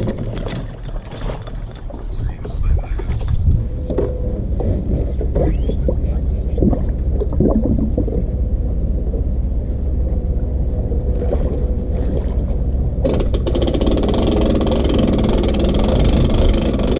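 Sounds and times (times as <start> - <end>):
steady low rumble: 0.0 - 16.9
truck engine starting and idling: 3.7 - 16.9.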